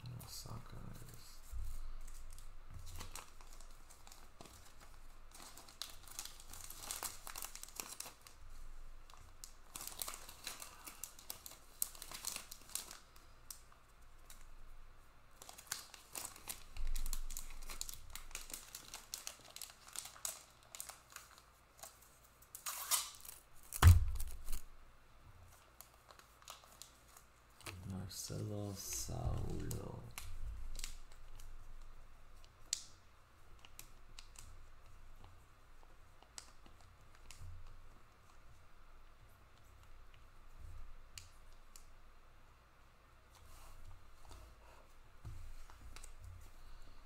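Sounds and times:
plastic sleeves crinkling and rustling: 0.0 - 14.8, 15.4 - 24.7, 25.4 - 41.9, 43.3 - 46.9
thump on table: 23.8 - 24.4.

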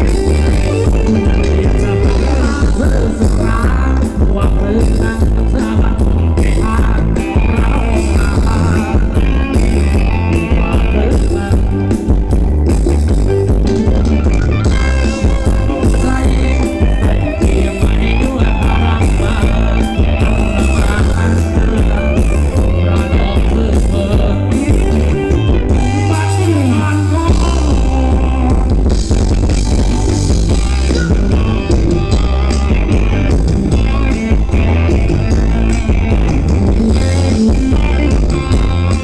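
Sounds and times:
guitar: 0.0 - 39.0
heavy bass line: 0.0 - 39.0
live band dance music: 0.0 - 39.0.

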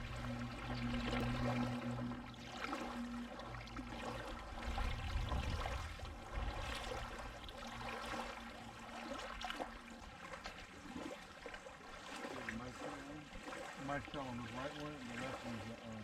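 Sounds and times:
low rumble: 0.0 - 7.9
lake water lapping: 0.0 - 16.0
small splashes: 0.0 - 16.0.

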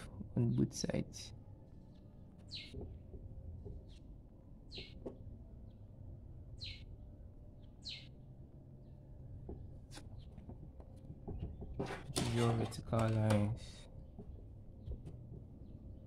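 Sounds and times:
faint low hum: 0.0 - 16.0
bird chirping: 1.8 - 10.6.

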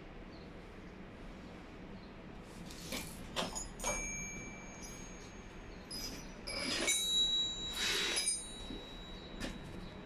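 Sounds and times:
metallic knocks and clinks: 3.4 - 10.0
metal ringing tone: 3.5 - 10.0.

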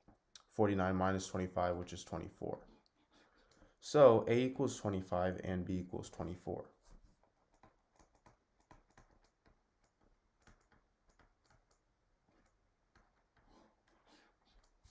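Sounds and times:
faint irregular clicks: 2.8 - 3.8, 7.1 - 14.9.

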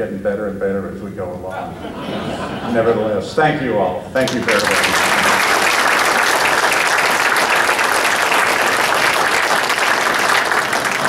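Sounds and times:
crowd applauding: 4.2 - 11.0.

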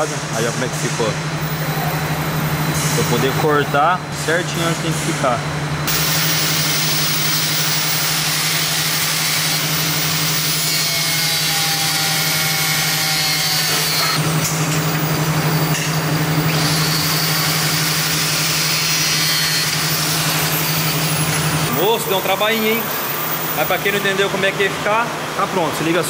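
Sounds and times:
angle grinder cutting metal: 5.9 - 21.8.

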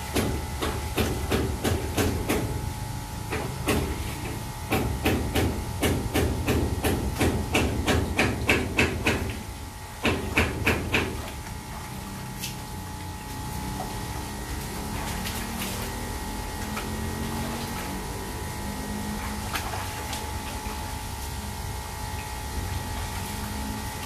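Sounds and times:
water splashing in a sink: 3.4 - 24.0.

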